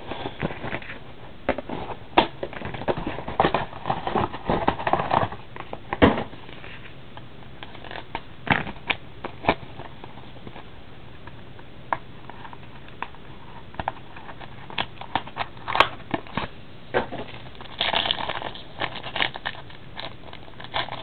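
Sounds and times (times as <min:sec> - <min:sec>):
plastic wrap crinkling: 0:12.2 - 0:21.0.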